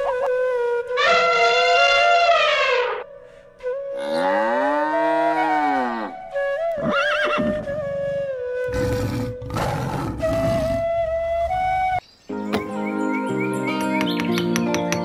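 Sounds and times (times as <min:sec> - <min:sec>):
flute-like background music: 0:00.0 - 0:15.0.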